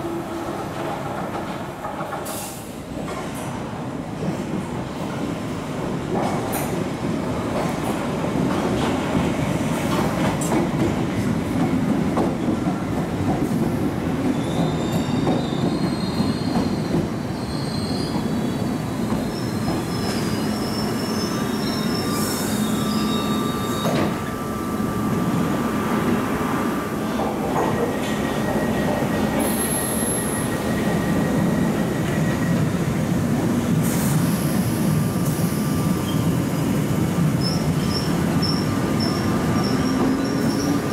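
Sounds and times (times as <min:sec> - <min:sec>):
train wheels rumbling on rails: 0:00.1 - 0:40.9
train brakes squealing: 0:14.3 - 0:25.5, 0:28.0 - 0:32.6, 0:33.8 - 0:36.3, 0:37.4 - 0:40.9.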